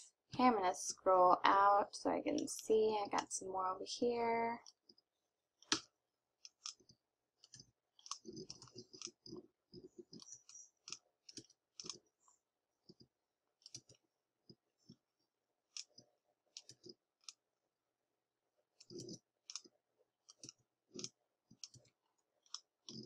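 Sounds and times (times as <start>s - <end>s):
mouse and keyboard clicking: 6.5s - 12.0s, 18.8s - 19.7s, 20.3s - 21.9s, 22.5s - 23.0s.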